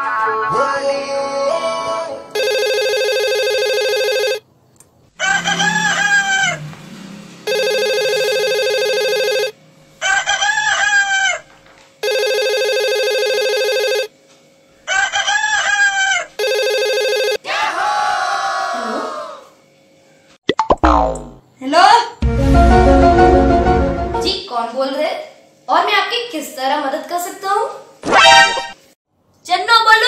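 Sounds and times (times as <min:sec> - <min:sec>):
electronic phone ring: 0:02.4 - 0:04.4, 0:07.5 - 0:09.6, 0:12.0 - 0:14.1, 0:16.4 - 0:17.4
rooster crowing: 0:05.1 - 0:06.8, 0:10.0 - 0:11.5, 0:14.8 - 0:16.6, 0:17.4 - 0:19.6.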